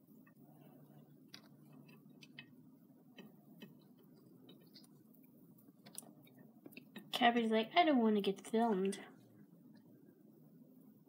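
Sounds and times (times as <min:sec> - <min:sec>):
faint room hum: 0:00.0 - 0:11.0
soft ticks and rustles: 0:01.0 - 0:07.1.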